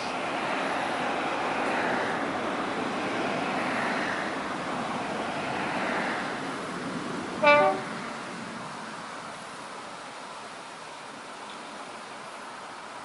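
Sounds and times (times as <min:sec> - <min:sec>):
two-tone locomotive horn blast: 0:07.4 - 0:07.9.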